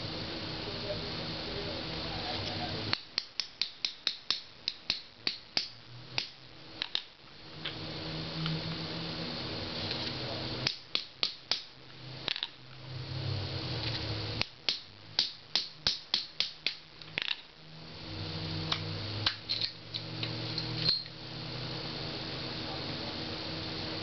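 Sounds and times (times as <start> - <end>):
hammer striking steel punch: 14.4 - 16.8.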